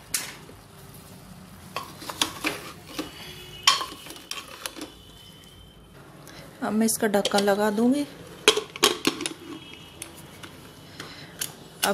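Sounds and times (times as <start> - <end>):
metal spatula scraping a pot: 1.8 - 5.0.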